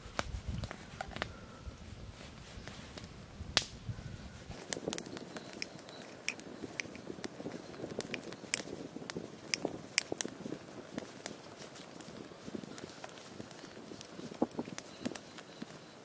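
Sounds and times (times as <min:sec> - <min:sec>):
mushroom snapping and crackling: 0:03.6 - 0:03.8, 0:04.6 - 0:15.7.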